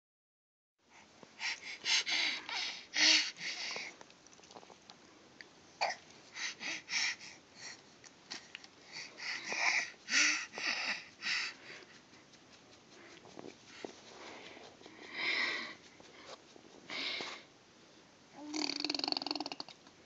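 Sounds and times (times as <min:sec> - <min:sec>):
baby panting: 0:00.9 - 0:04.0, 0:05.8 - 0:17.5.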